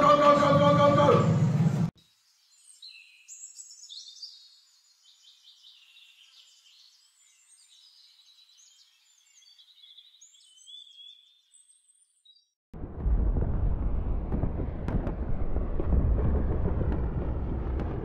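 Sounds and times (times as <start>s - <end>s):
birds chirping and warbling: 1.4s - 12.6s.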